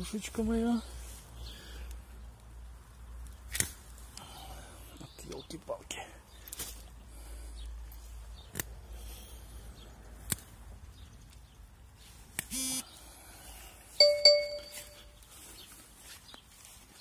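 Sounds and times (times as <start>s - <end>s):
stalks snapping: 3.2s - 4.3s, 8.4s - 8.8s, 10.1s - 10.6s, 12.3s - 12.5s.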